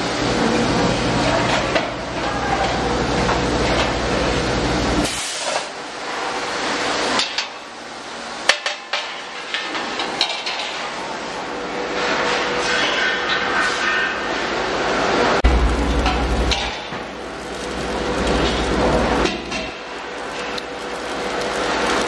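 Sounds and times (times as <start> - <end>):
workshop noise: 0.0 - 22.0
low machine hum: 14.4 - 22.0.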